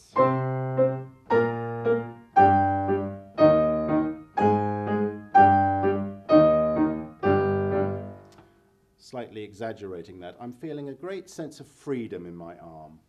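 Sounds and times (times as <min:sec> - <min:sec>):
piano octave exercise: 0:00.0 - 0:08.4.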